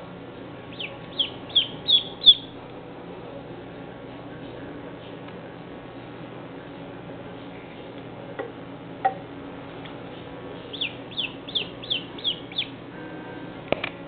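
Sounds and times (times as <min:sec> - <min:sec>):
duckling peeping: 0:00.7 - 0:02.6, 0:10.6 - 0:12.8.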